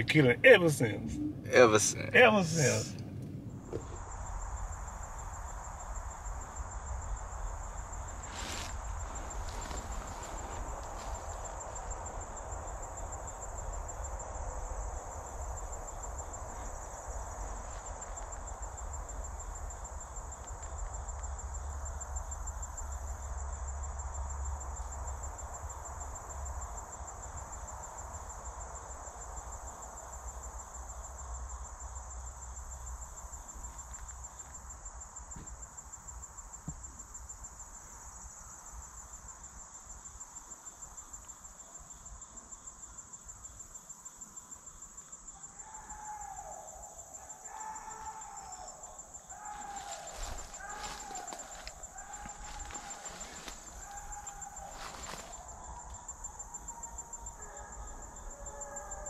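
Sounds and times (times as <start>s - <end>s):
low rumble: 0.0s - 6.0s
insects trilling: 0.0s - 59.0s.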